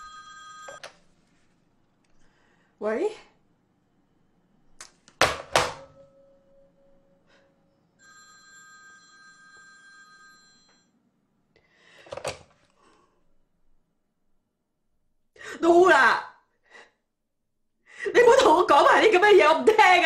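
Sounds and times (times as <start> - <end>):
telephone ringing: 0.0 - 1.0, 8.0 - 11.0.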